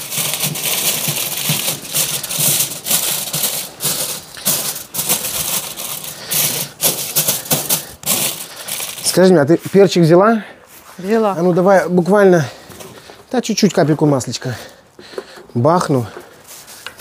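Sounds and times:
aluminium foil crinkling: 0.0 - 10.0.

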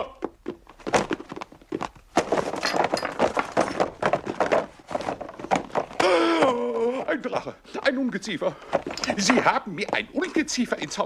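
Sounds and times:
boxes tumbling onto wooden floor: 0.3 - 7.2, 8.6 - 10.0.

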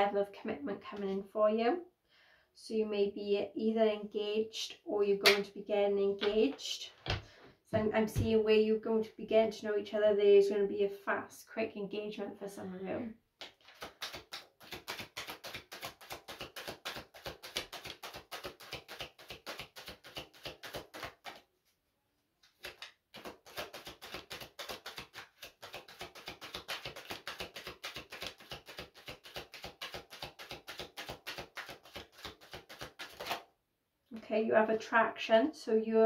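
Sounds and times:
cards shuffled by hand: 13.4 - 21.5, 22.4 - 33.5.

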